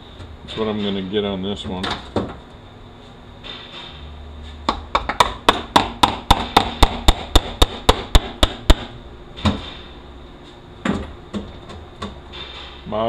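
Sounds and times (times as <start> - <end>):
hammer tapping on metal: 4.7 - 8.9.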